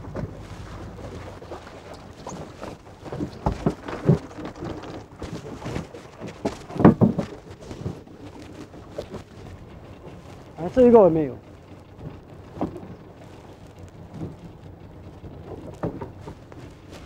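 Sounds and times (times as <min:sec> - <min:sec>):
sea water splashing and dripping: 0:00.0 - 0:06.6.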